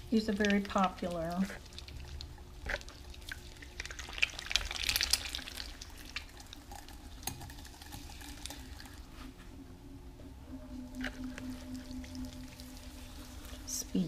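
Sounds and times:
potter's wheel humming: 0.0s - 4.4s, 5.2s - 14.0s
wet clay squelching: 0.0s - 6.6s.

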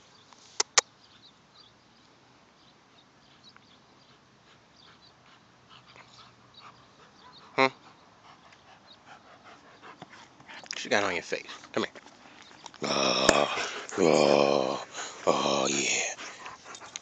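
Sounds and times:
sharp clicks: 0.6s - 0.9s.

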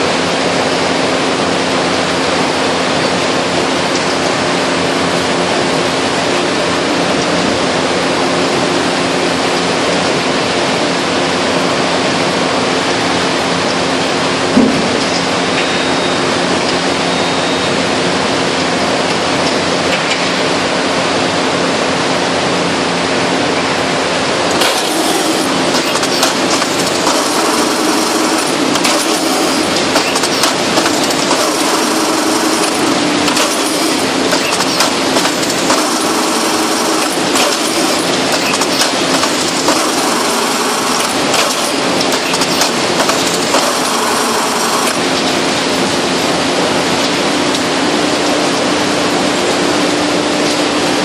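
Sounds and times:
hydraulic baler droning: 21.7s - 51.0s.

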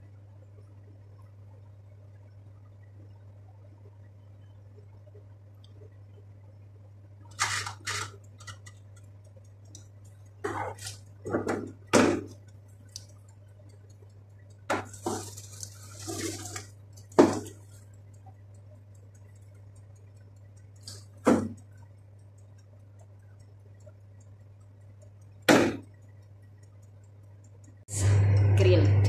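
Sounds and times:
steady low hum: 0.0s - 29.0s
foil tray clattering and crinkling: 14.8s - 16.7s.

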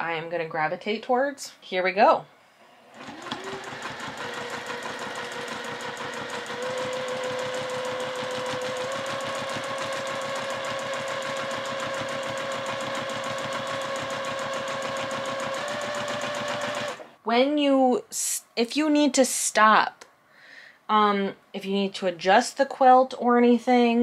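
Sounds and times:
sewing machine running: 2.9s - 17.2s.

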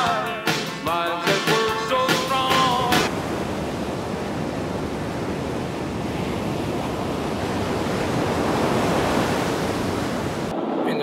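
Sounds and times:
wind noise on microphone: 3.1s - 11.0s.

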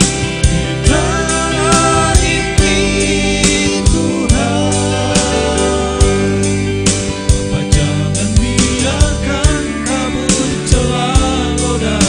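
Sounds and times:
backing track with bass: 0.0s - 12.0s
steady drum beat: 0.0s - 12.0s
male group singing: 0.8s - 6.7s, 7.5s - 12.0s.

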